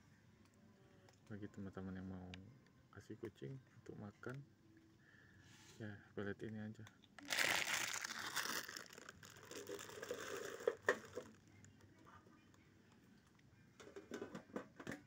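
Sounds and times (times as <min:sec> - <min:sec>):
plastic bag crinkling: 0:07.2 - 0:11.4.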